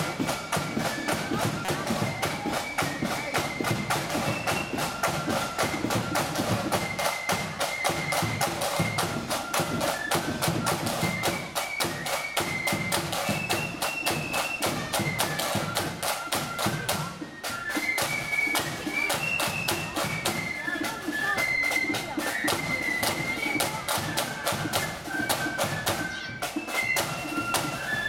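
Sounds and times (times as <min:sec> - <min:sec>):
flute melody: 0:00.0 - 0:28.0
side drums beating: 0:00.0 - 0:28.0.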